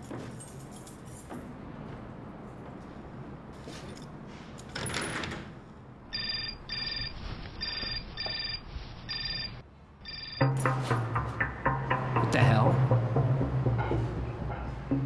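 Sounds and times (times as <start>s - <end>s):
phone ringtone pulses: 6.1s - 10.8s.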